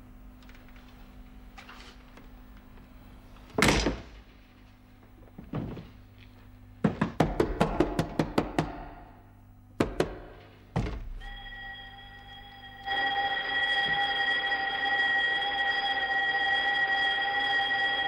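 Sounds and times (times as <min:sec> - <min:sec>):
fists pounding on metal door: 0:06.8 - 0:09.2, 0:09.8 - 0:11.2.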